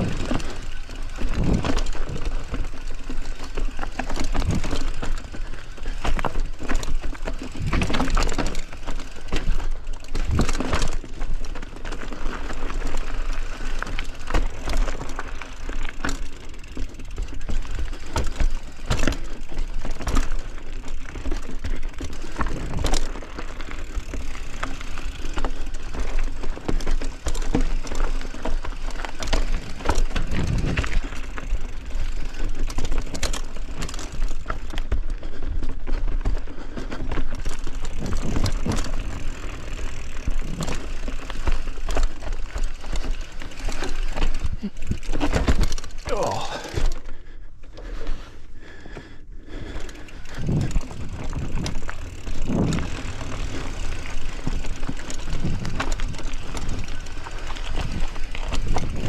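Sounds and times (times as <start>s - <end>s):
tyre noise rushing: 0.0s - 11.1s, 28.5s - 34.7s, 50.2s - 59.0s
bike knocks and rattles: 0.0s - 47.2s, 49.7s - 59.0s.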